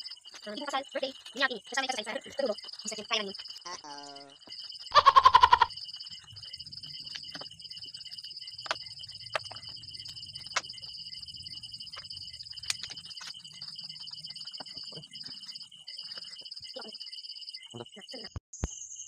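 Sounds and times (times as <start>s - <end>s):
insects chirring: 0.0s - 19.0s
loud bleating animal call: 4.9s - 5.7s
sharp clicks: 11.8s - 14.6s.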